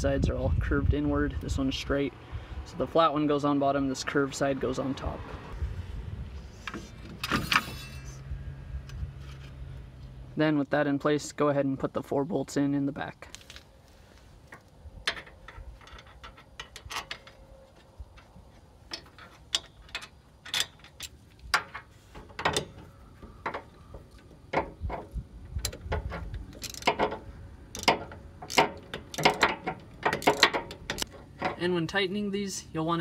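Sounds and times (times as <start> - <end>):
socket ratchet clicking: 26.5 - 31.1.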